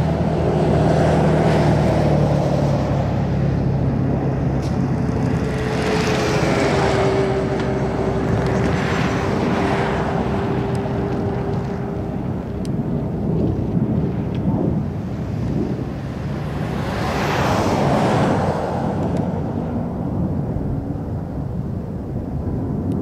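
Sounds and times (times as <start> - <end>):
steady humming tone: 0.0 - 16.8
jet engine rumble: 0.0 - 23.0.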